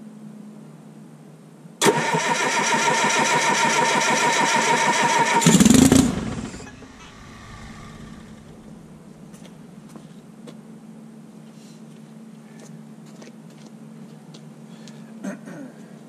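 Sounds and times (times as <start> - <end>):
starter cranking diesel engine: 1.8 - 9.2.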